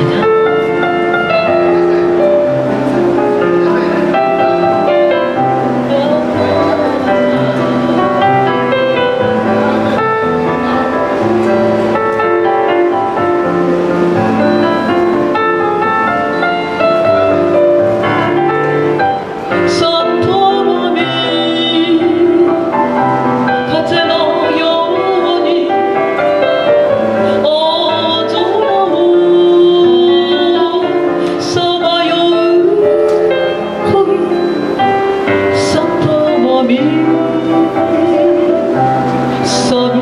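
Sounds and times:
piano-led backing music: 0.0 - 40.0
woman singing: 4.8 - 9.2, 19.1 - 40.0.

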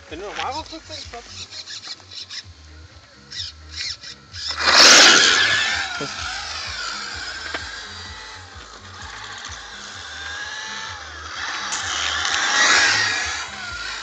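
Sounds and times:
rc car motor whine: 0.0 - 14.0
tyre noise on asphalt: 4.4 - 14.0.

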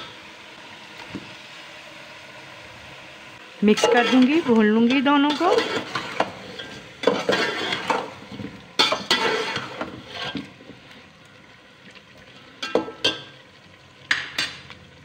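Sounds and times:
food sizzling: 0.0 - 15.0
metal spatula scraping pot: 3.6 - 10.5.

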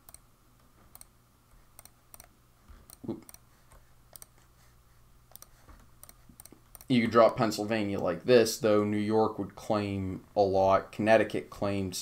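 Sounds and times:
computer mouse clicks: 0.0 - 1.1, 1.7 - 4.4, 5.3 - 6.9.

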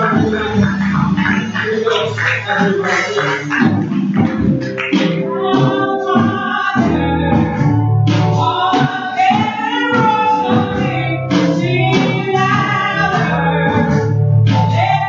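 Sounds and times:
band accompaniment: 0.0 - 15.0
women singing together: 5.4 - 7.5, 8.4 - 13.9.

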